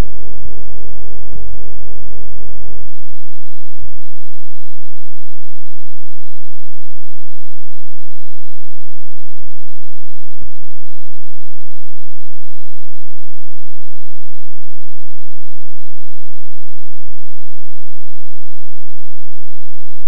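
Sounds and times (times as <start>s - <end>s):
loud low buzzing drone: 0.0s - 3.2s.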